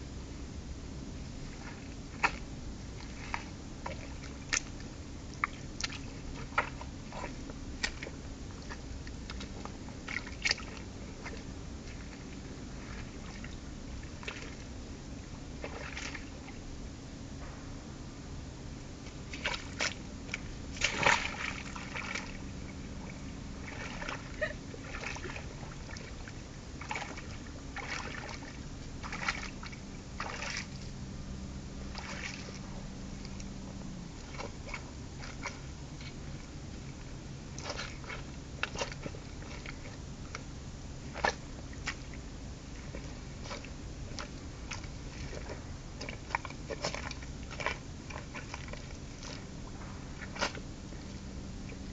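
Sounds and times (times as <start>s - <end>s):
low hum: 0.0s - 51.9s
boots squelching in mud: 5.5s - 13.5s, 15.6s - 16.2s, 19.1s - 22.5s, 23.6s - 30.9s, 31.9s - 33.4s, 37.5s - 40.5s, 42.8s - 51.2s.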